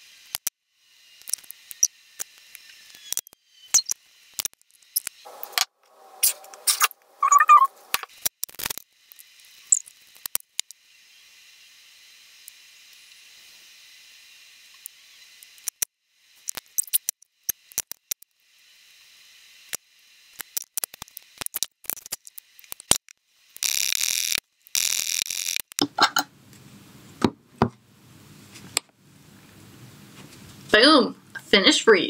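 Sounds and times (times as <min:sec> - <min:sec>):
tools clicking and tapping: 0:25.6 - 0:26.3.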